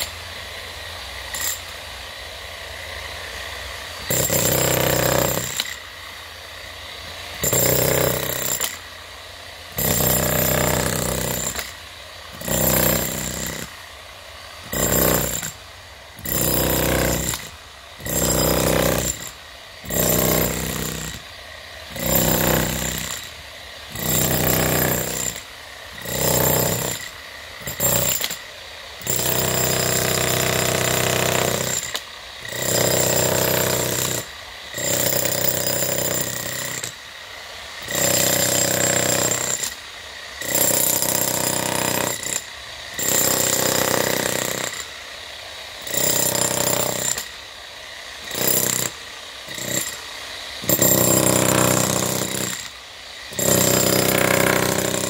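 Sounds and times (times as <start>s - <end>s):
demolition hammer chiselling concrete: 4.0s - 5.8s, 7.4s - 8.8s, 9.8s - 13.8s, 14.7s - 15.6s, 16.2s - 21.3s, 21.9s - 28.4s, 29.0s - 37.0s, 37.8s - 39.8s, 40.4s - 44.9s, 45.8s - 47.3s, 48.2s - 50.0s, 50.6s - 55.0s.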